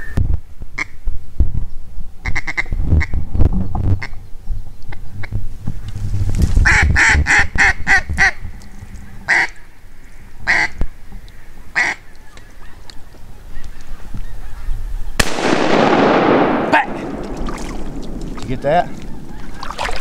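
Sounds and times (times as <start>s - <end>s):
duck call quacks: 6.6s - 8.4s, 9.3s - 9.6s, 10.5s - 10.8s, 11.8s - 12.0s.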